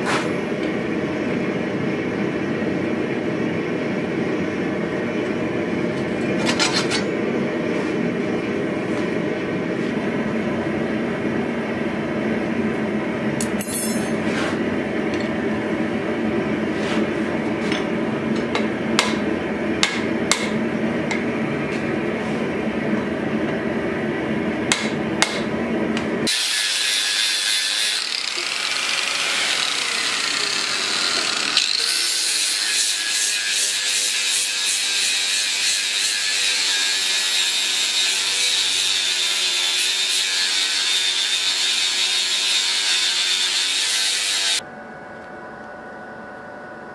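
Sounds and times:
angle grinder grinding steel: 26.3 - 44.6.

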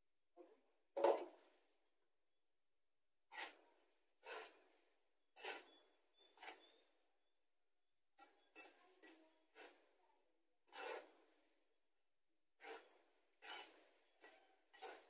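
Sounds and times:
hand scoop scraping soil: 3.3 - 7.0, 8.2 - 10.0, 10.7 - 11.5, 12.6 - 15.0.

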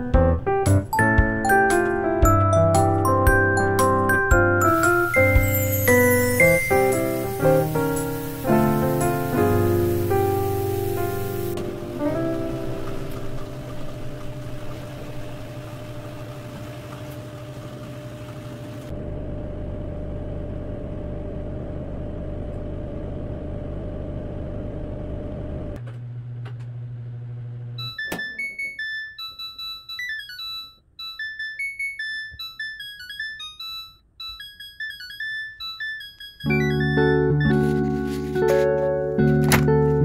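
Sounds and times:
electronic melody: 0.1 - 15.0, 27.8 - 40.0
washing machine spinning: 1.2 - 29.0
low hum: 11.4 - 25.8.

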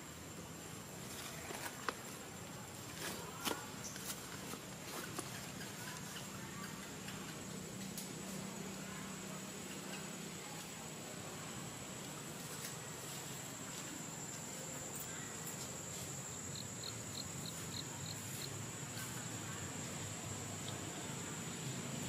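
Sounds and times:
insects droning: 0.0 - 22.0.

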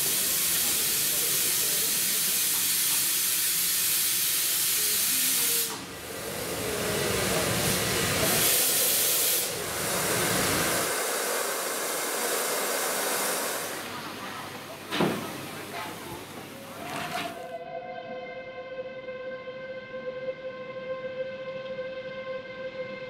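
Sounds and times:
steam locomotive hissing: 0.0 - 17.4.

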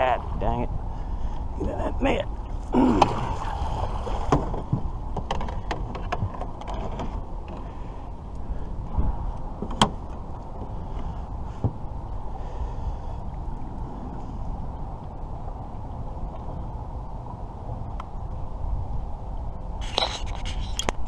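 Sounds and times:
steady low rumble: 0.0 - 21.0
fishing gear knocking against boat: 4.2 - 7.7.

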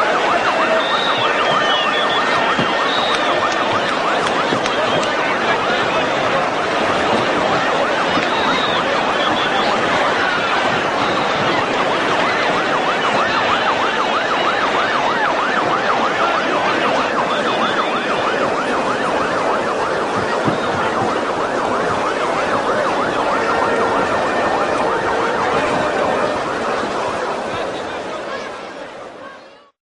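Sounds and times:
siren yelping: 0.0 - 29.6
large crowd noise: 0.0 - 29.8.

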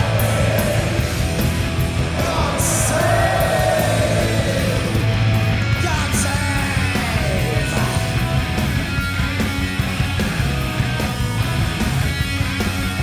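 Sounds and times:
punk rock band playing: 0.0 - 13.0
shouted sneering lead vocal: 2.1 - 5.2.

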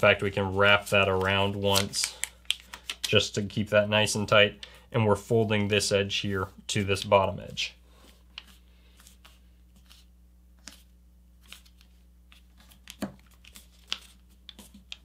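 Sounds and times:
paper crackling: 8.4 - 15.0.

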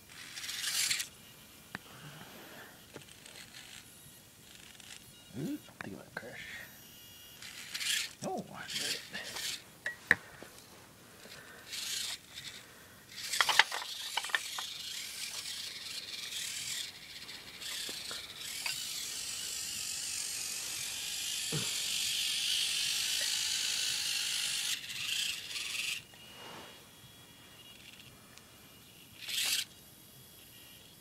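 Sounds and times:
electric motor and gears whining: 0.0 - 9.7, 10.6 - 31.0
toy truck knocking on rocks: 13.3 - 14.7.

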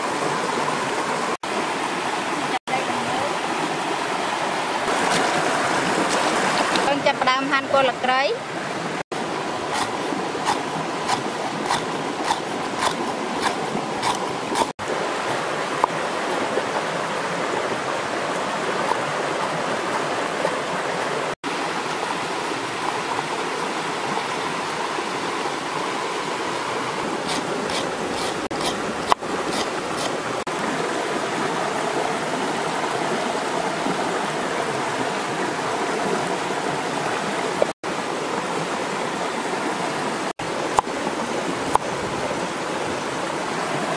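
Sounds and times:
river flowing over stones: 0.0 - 43.9
cleaver chopping on wooden block: 9.7 - 14.7.

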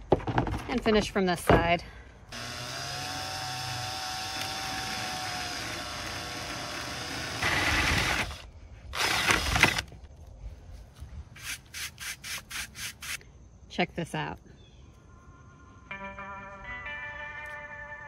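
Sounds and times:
power drill boring through wood: 2.3 - 9.9.

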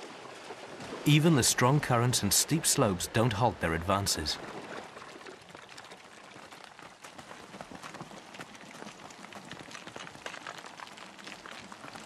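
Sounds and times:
hooves of running herd: 0.0 - 1.2, 4.2 - 12.0.

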